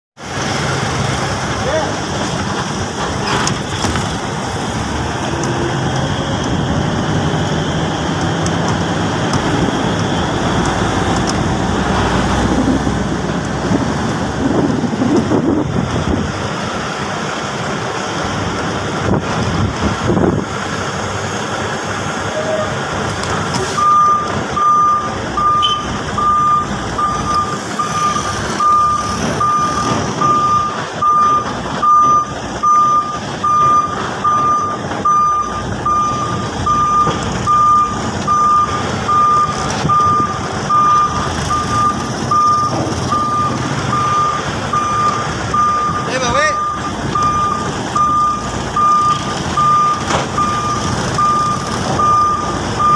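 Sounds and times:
diesel engine running: 0.2 - 52.9
truck reversing alarm beeping: 22.2 - 52.9.

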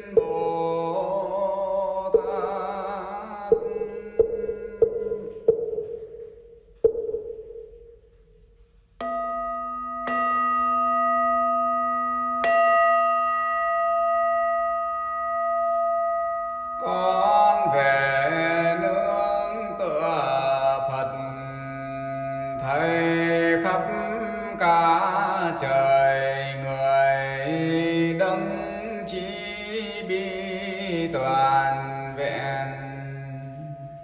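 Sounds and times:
soft instrumental music: 0.0 - 21.2
bowl bell ringing: 9.0 - 18.4.

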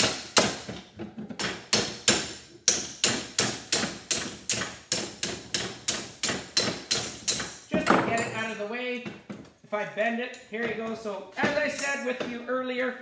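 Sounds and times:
hammer striking metal: 1.7 - 8.6.

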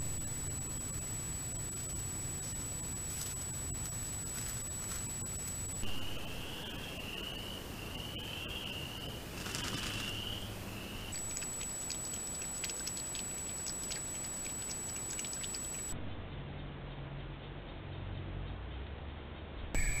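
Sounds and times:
high electronic whine: 0.0 - 16.4, 19.8 - 20.0
rustle: 1.7 - 6.4, 9.2 - 15.9
high wavering trill: 19.8 - 20.0.

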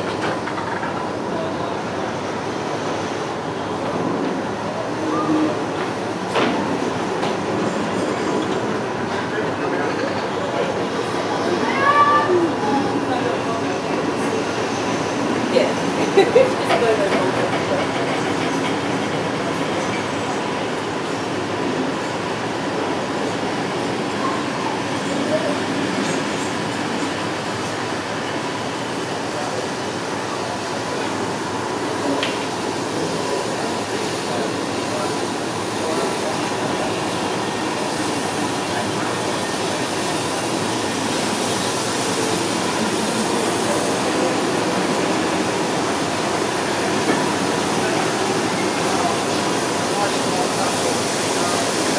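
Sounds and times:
train carriages rumbling on rails: 0.0 - 51.9.

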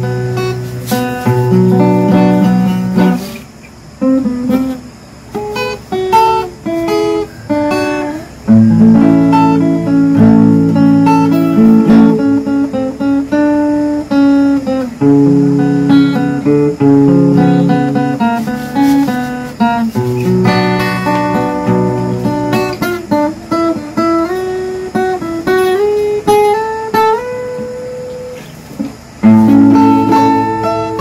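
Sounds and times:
fingerstyle acoustic guitar: 0.0 - 31.0.

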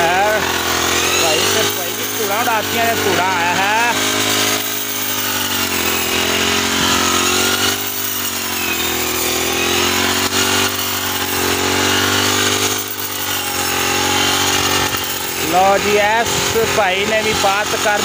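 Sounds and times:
brush cutter engine running: 0.0 - 18.0.

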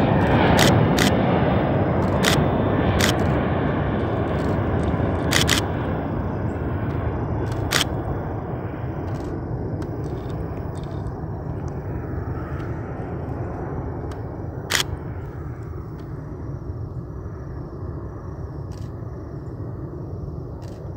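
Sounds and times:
jet engines rumbling: 0.0 - 20.9
sharp clicks: 0.2 - 1.2, 2.0 - 2.4, 3.0 - 3.4, 4.4 - 5.7, 7.4 - 8.0, 14.1 - 14.9.

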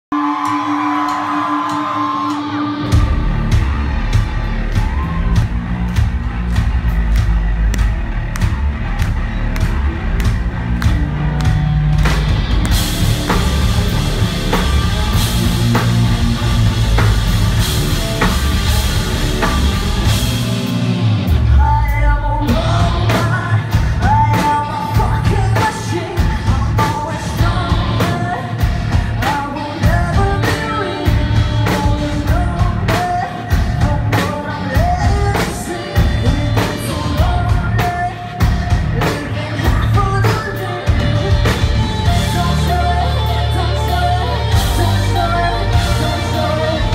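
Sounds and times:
rock band playing: 0.1 - 46.9
woman singing lead vocal: 21.4 - 46.9.

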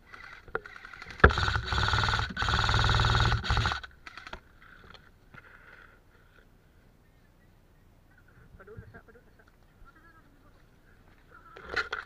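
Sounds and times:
airsoft gun firing full auto: 0.0 - 4.4.

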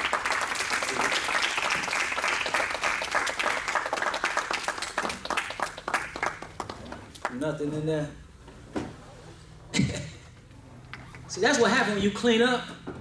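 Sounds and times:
crowd applauding: 0.0 - 7.5.

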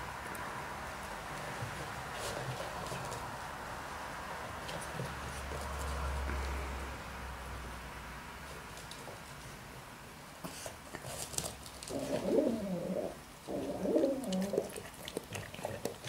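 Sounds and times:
pigeon cooing: 11.9 - 14.9.

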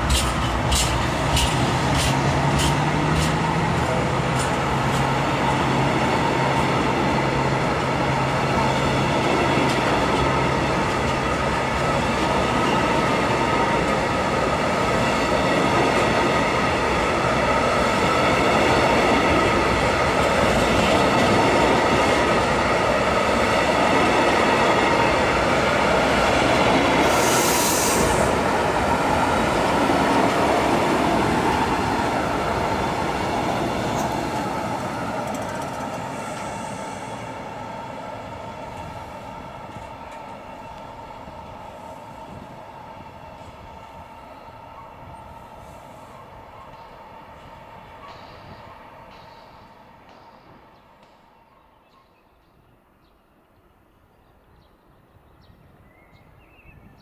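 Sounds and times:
train wheels rumbling on track: 0.0 - 52.0
brief high hiss: 27.0 - 28.4
wheels clicking over rail joint: 34.9 - 36.6.

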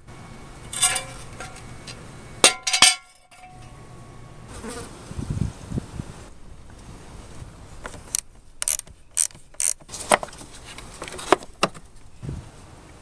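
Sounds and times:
ratcheting wrench clicking: 7.8 - 9.9
sharp metal clicks: 7.8 - 9.9.

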